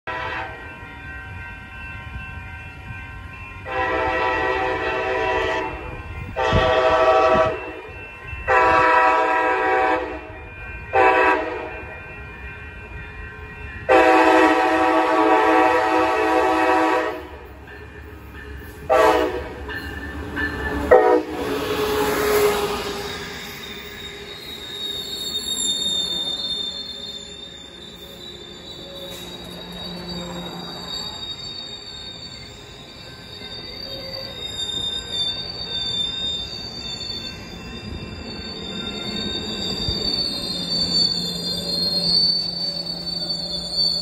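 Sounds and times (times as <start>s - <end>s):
locomotive air horn blasts: 0.1s - 0.6s, 3.7s - 5.8s, 6.4s - 7.7s, 8.5s - 10.3s, 10.9s - 11.7s, 13.9s - 17.4s, 18.9s - 19.6s, 20.9s - 23.0s
train rumble: 0.1s - 44.0s.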